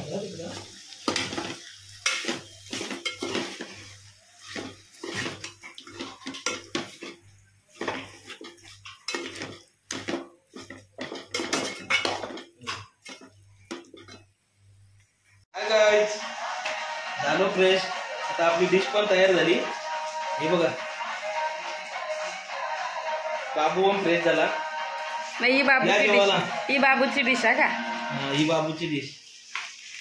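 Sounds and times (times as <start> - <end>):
spoon clinking on pot and dishes: 1.1 - 14.3.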